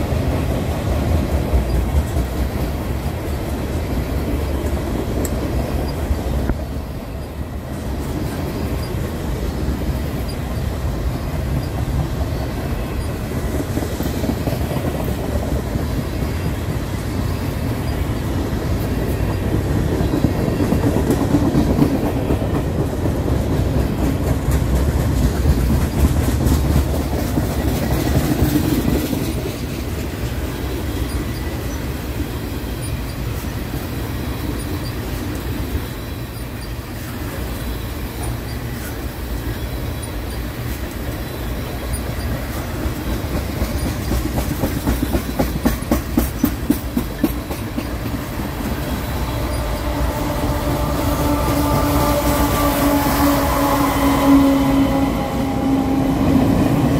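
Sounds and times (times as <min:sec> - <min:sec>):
diesel locomotive approaching: 0:00.0 - 0:56.9
steel wheels rumbling on rail: 0:00.0 - 0:56.9
wheels clickety-clack over rail joints: 0:00.0 - 0:56.9.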